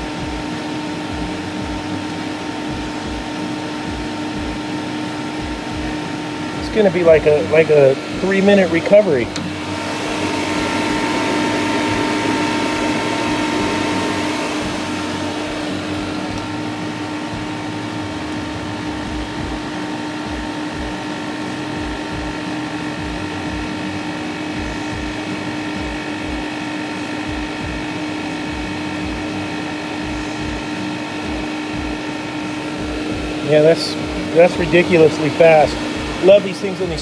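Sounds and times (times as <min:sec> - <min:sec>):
low pulsing: 0:00.0 - 0:37.0
machine humming with whine: 0:00.0 - 0:37.0.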